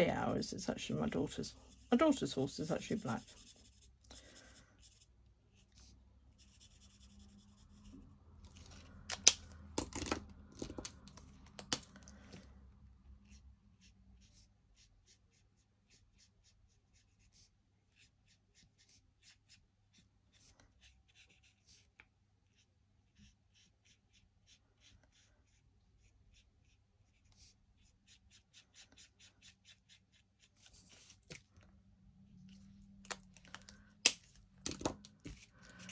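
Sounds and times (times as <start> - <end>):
marker scratching on card: 1.6 - 4.0, 4.8 - 8.0, 13.2 - 31.4.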